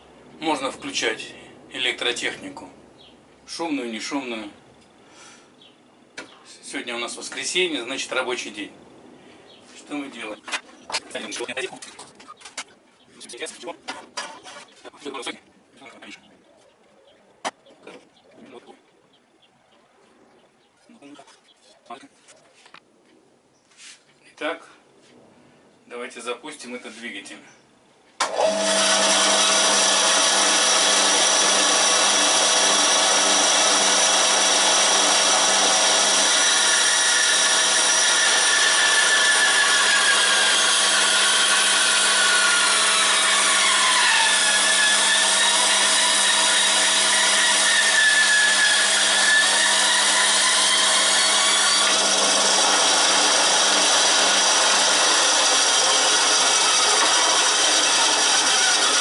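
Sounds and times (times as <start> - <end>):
band saw cutting wood: 28.2 - 59.0.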